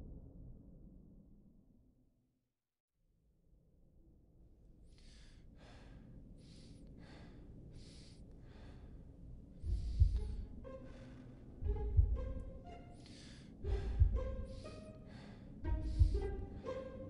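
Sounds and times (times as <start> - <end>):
heavy rhythmic breathing: 4.9 - 17.0
low rumble: 9.6 - 12.8, 13.6 - 16.8.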